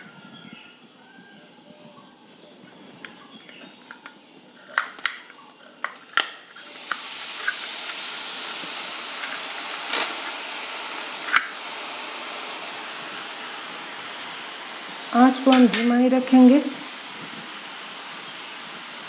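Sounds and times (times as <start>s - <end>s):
oil sizzling: 5.8s - 19.0s.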